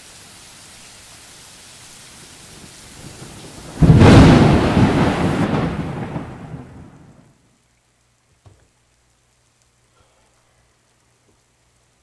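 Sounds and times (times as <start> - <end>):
steady rain: 0.0 - 12.0
thunderclap rumbling: 2.4 - 7.3.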